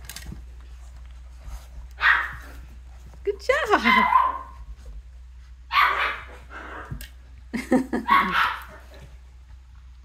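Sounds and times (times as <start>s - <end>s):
puppy barking: 2.0s - 2.5s, 3.8s - 4.6s, 5.7s - 6.8s, 8.0s - 9.0s.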